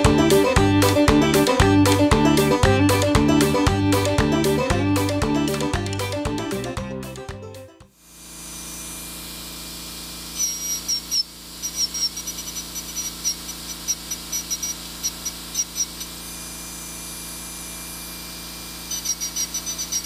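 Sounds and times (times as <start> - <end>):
dental drill whining: 8.1 - 20.0
drill pecking at steel: 10.4 - 16.3, 18.8 - 20.0.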